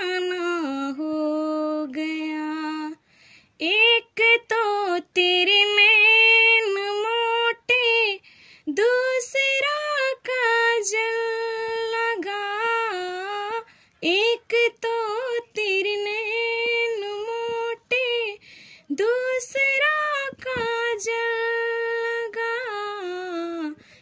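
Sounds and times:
woman singing unaccompanied: 0.0 - 24.0.

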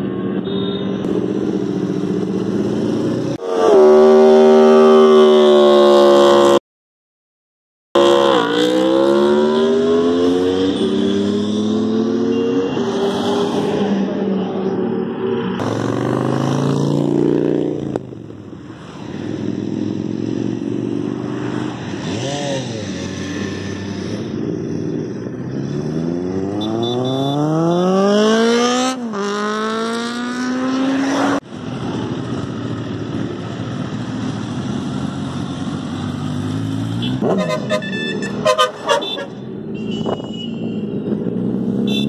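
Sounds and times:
motorcycle engines revving: 0.0 - 6.6, 8.0 - 42.0
motorcycle passing by: 8.1 - 18.0, 18.8 - 39.4, 40.9 - 42.0.

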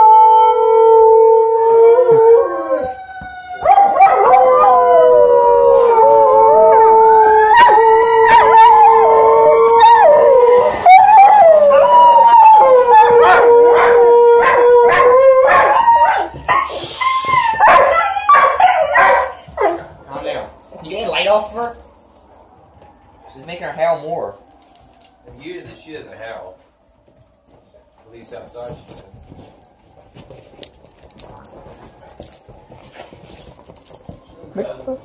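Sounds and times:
dogs howling: 0.0 - 26.5
dog yipping: 3.2 - 4.8, 10.9 - 20.0.

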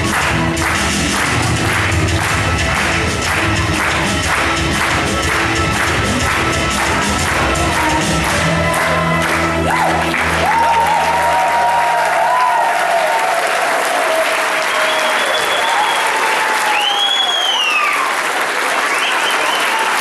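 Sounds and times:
audience applauding: 0.0 - 20.0
whistles: 14.6 - 18.1, 18.8 - 20.0.

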